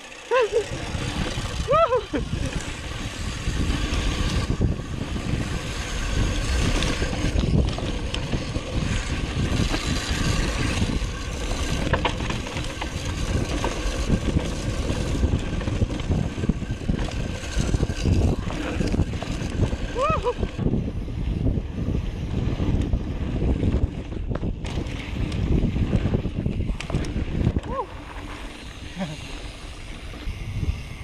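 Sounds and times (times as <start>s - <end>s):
tyres rolling on dirt: 0.0s - 21.0s
bike clicks and rattles: 0.0s - 31.0s
wind rushing over microphone: 0.5s - 31.0s.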